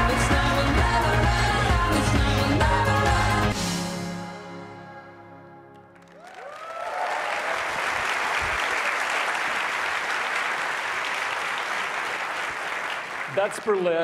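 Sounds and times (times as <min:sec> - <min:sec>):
music: 0:00.0 - 0:06.2
audience applauding: 0:05.8 - 0:14.0
audience cheering: 0:06.0 - 0:13.9.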